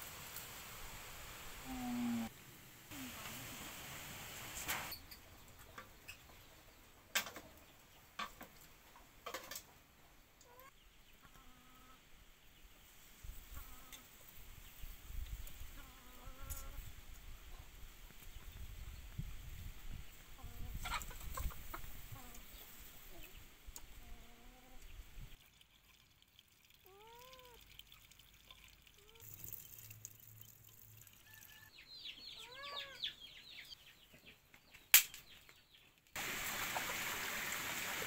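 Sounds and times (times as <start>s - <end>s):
chicken clucking: 20.4s - 23.4s.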